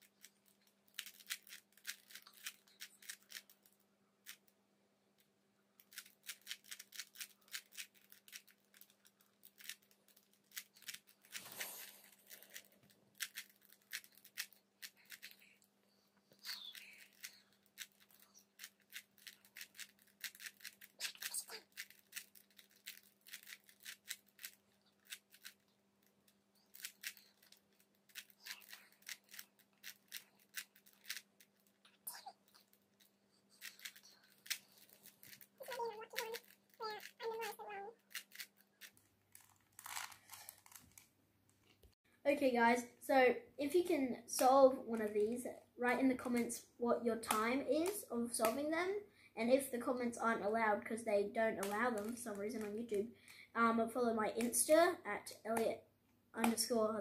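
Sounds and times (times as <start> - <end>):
puzzle cube clicking: 0.1 - 4.5, 5.8 - 15.4, 16.4 - 32.8, 33.6 - 41.0, 51.6 - 52.8.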